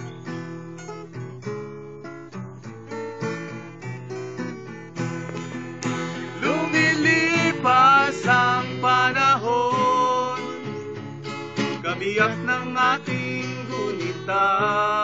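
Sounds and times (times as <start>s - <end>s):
acoustic guitars strummed and picked: 0.0s - 15.0s
people singing: 6.3s - 10.6s, 11.8s - 15.0s.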